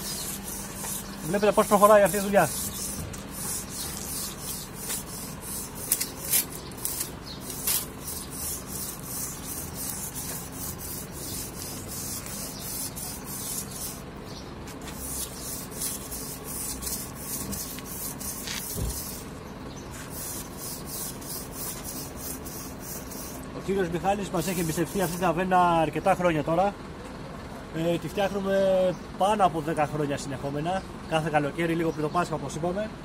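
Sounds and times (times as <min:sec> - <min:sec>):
wire brush scraping concrete: 0:00.0 - 0:14.1, 0:14.8 - 0:19.3, 0:19.9 - 0:23.4, 0:24.4 - 0:25.4.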